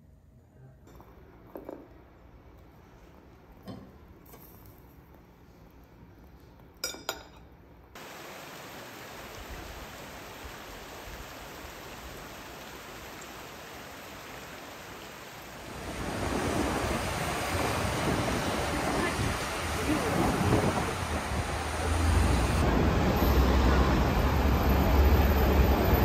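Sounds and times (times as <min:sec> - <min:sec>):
tableware clinking: 0:06.8 - 0:07.6.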